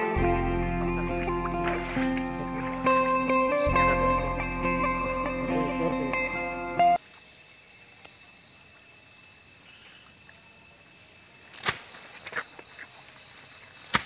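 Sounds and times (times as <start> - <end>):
background music: 0.0 - 7.0
night insects chirping: 0.0 - 14.0.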